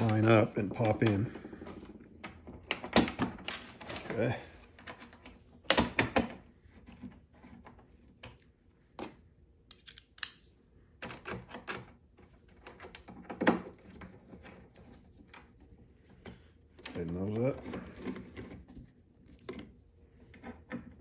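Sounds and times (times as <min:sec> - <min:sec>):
bolts and nuts clicking: 0:09.7 - 0:11.9.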